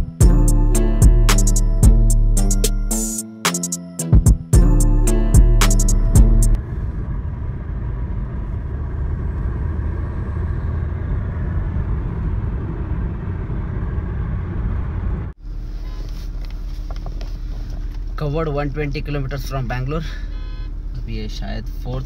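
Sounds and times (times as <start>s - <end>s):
car cabin engine and road noise: 4.6s - 22.0s.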